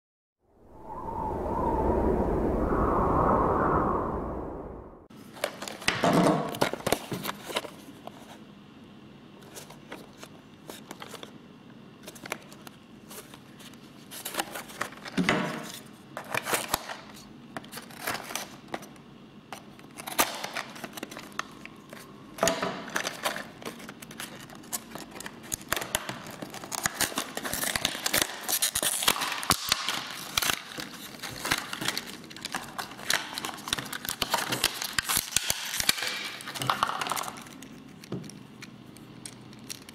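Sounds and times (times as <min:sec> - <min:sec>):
knife cutting packaging: 0:23.0 - 0:39.9
plastic packaging crinkling: 0:23.1 - 0:39.9.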